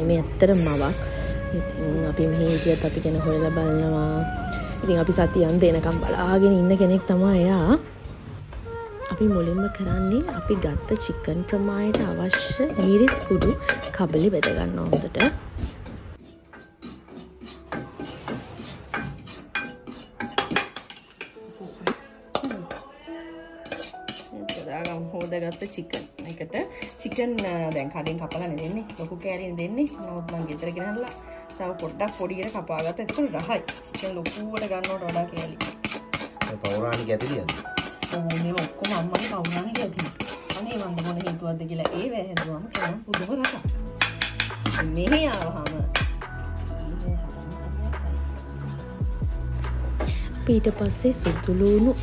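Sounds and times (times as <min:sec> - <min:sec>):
metal spoon scraping metal wok: 0:00.4 - 0:01.4, 0:02.2 - 0:03.5, 0:11.6 - 0:22.9, 0:23.6 - 0:46.4.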